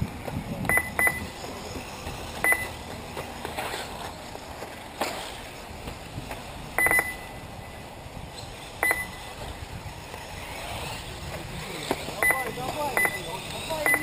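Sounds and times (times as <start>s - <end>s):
low outdoor background noise: 0.0s - 14.0s
short electronic beeps: 0.7s - 1.3s, 2.4s - 2.8s, 6.8s - 7.4s, 8.8s - 9.2s, 12.2s - 13.2s.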